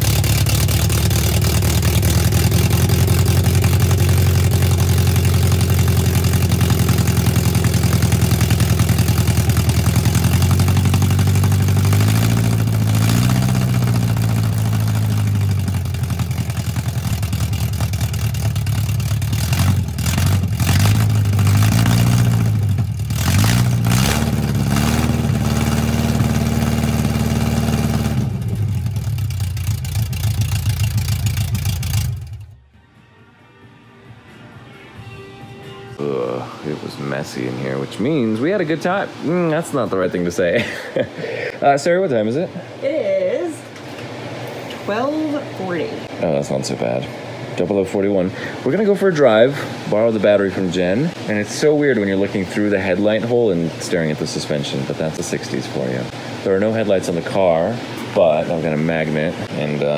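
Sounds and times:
car engine revving without exhaust: 0:00.0 - 0:32.7.

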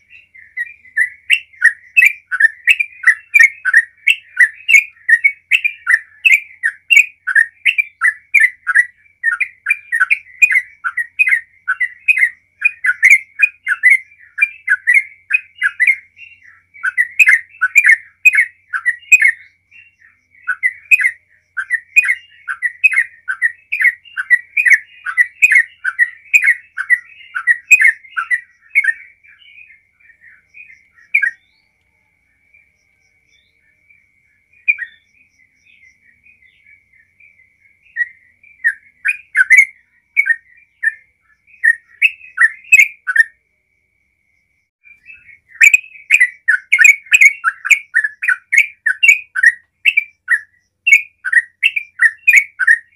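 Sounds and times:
bird singing whistled notes: 0:00.0 - 0:43.6, 0:44.4 - 0:52.9.

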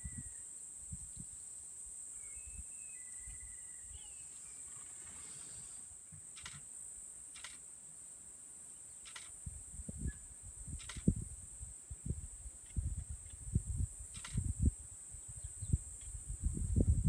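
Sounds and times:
faint bird whistles: 0:02.2 - 0:04.8
short clicks: 0:06.3 - 0:06.7, 0:07.3 - 0:07.6, 0:09.0 - 0:09.4, 0:10.8 - 0:11.1, 0:14.1 - 0:14.4.

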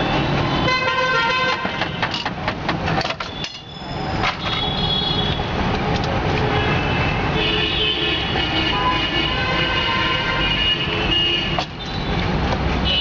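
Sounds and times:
street traffic: 0:00.0 - 0:13.0
vehicle horn: 0:00.5 - 0:02.0, 0:06.5 - 0:11.6.

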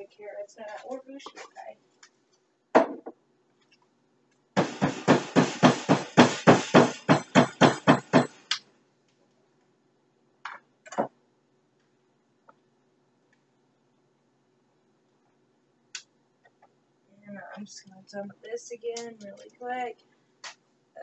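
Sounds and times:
kitchen implements knocking: 0:04.6 - 0:08.4.

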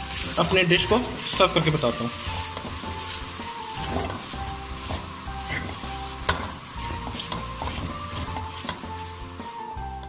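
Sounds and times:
noodles sizzling in a pot: 0:00.0 - 0:10.0
soft background music: 0:00.0 - 0:10.0
spoon scraping and knocking pot: 0:03.8 - 0:04.2, 0:04.8 - 0:08.9.

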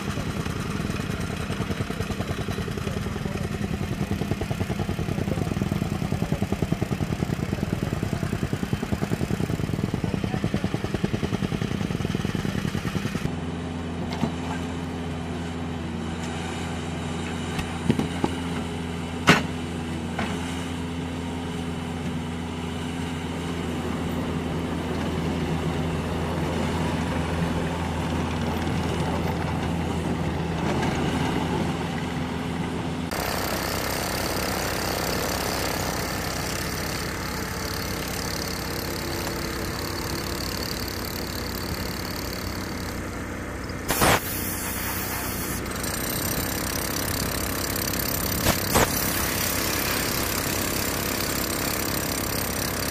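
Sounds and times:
diesel engine running: 0:00.0 - 0:52.9
rotary hammer drills boring: 0:33.1 - 0:43.1, 0:43.9 - 0:52.9.

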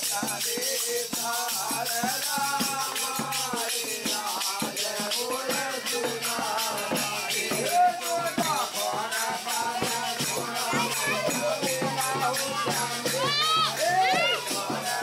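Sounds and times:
rattling percussion beat: 0:00.0 - 0:15.0.

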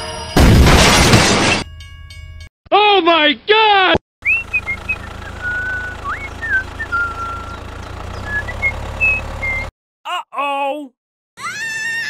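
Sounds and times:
high whistled chirps: 0:04.2 - 0:09.7
low motor hum: 0:04.2 - 0:09.7.

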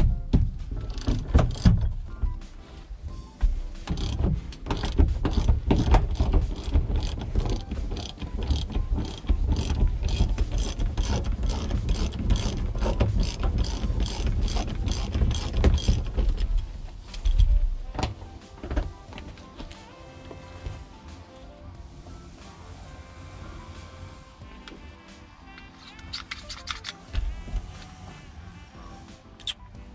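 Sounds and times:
ratchet wrench clicking: 0:00.8 - 0:01.9, 0:03.8 - 0:17.5, 0:25.5 - 0:28.7, 0:29.4 - 0:29.7.

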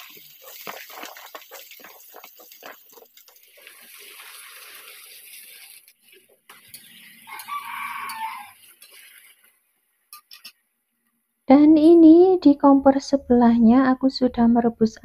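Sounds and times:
potatoes sizzling in hot oil: 0:00.0 - 0:09.6
metal spatula stirring: 0:00.0 - 0:10.6.

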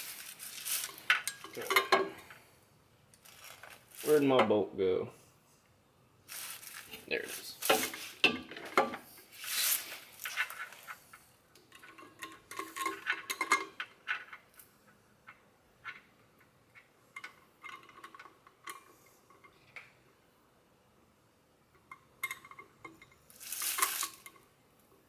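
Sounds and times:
metal bolt clinking on brackets: 0:00.8 - 0:02.3, 0:11.7 - 0:14.4.

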